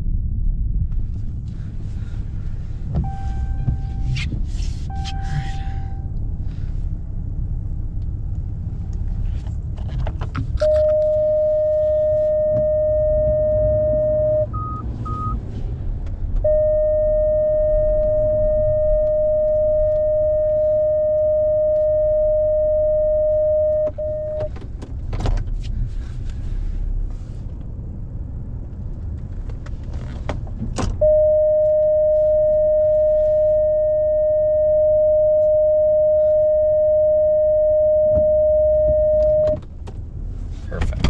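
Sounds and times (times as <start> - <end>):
low rumble: 0.0 - 41.0
reverse parking alarm beep: 3.0 - 4.2, 4.9 - 6.1, 10.6 - 15.4, 16.4 - 24.5, 31.0 - 39.6.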